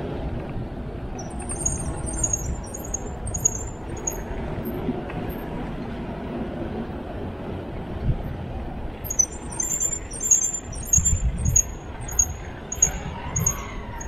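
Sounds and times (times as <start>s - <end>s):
bicycle road noise: 0.0s - 14.0s
wind on microphone: 0.0s - 14.0s
short high chirps: 1.2s - 4.3s, 9.1s - 13.6s.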